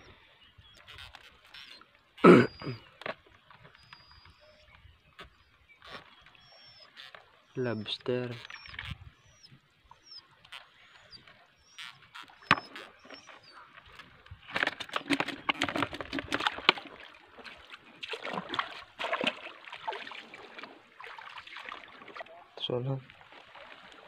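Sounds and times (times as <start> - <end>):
seawater splashing: 0.8 - 24.0
fishing net and bucket clatter: 12.5 - 22.4.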